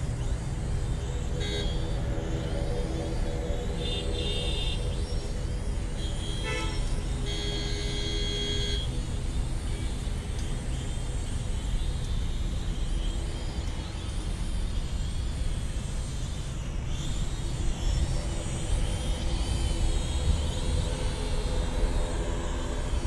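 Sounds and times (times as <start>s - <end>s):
low rumble of road traffic: 0.0s - 23.0s
drone propellers whining: 13.6s - 23.0s.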